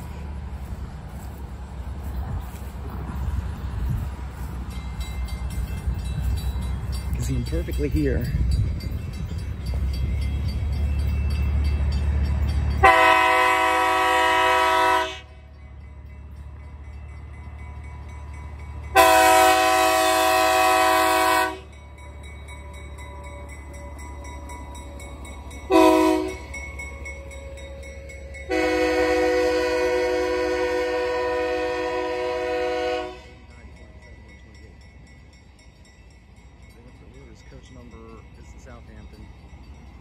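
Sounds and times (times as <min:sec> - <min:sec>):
locomotive air horn blasts: 0:12.8 - 0:15.4, 0:18.9 - 0:21.7, 0:25.7 - 0:26.6, 0:28.5 - 0:33.5.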